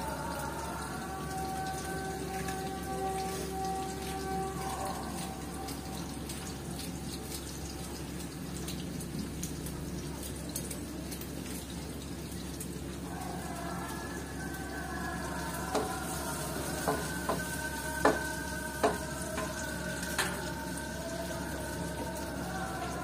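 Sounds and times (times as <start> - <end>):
slowly wavering melody: 0.0 - 8.1, 13.0 - 23.0
vegetables sizzling in frying pan: 15.1 - 23.0
wooden spatula knocking pan: 16.8 - 19.6.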